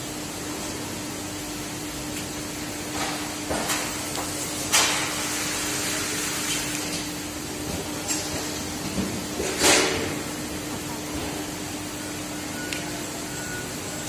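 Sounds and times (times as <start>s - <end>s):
ventilation hum: 0.0s - 14.0s.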